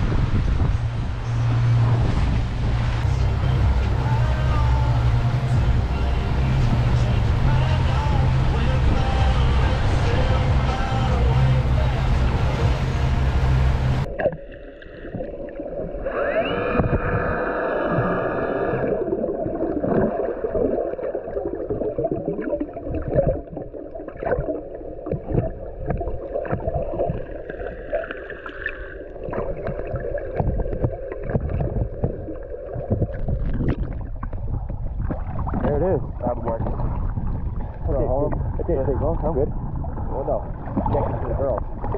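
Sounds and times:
outboard motors: 0:00.0 - 0:19.2, 0:24.3 - 0:41.9
underwater rush of water: 0:00.0 - 0:41.9
underwater clicks and crackles: 0:14.0 - 0:41.9.

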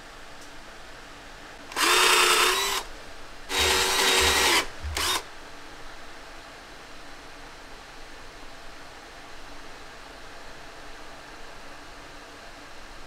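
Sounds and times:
power tool motor whining: 0:01.7 - 0:02.9, 0:03.5 - 0:05.2.

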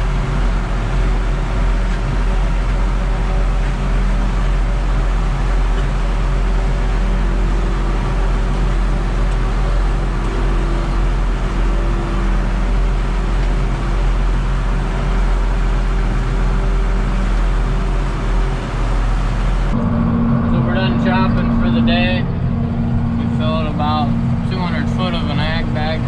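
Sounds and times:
farm machinery engines droning: 0:00.0 - 0:26.0.

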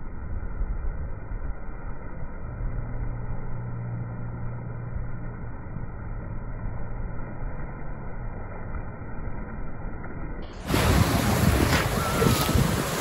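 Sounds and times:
low hum: 0:00.0 - 0:13.0
sea surf rushing: 0:10.5 - 0:13.0
wind on microphone: 0:10.6 - 0:13.0.

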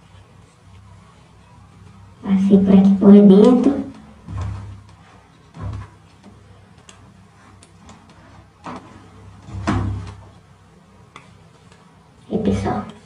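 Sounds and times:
handling knocks: 0:03.4 - 0:06.4, 0:07.9 - 0:10.3
rubber tubing clicking and rubbing: 0:03.4 - 0:09.0.

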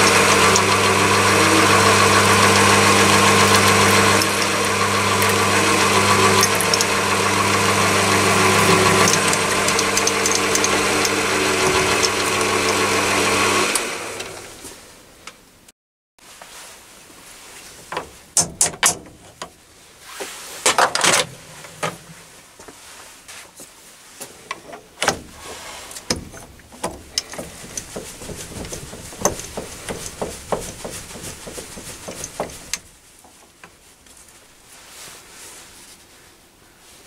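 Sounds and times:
metal tooling clicks and knocks: 0:06.2 - 0:06.9, 0:09.0 - 0:12.8, 0:17.9 - 0:19.5, 0:26.0 - 0:32.9.

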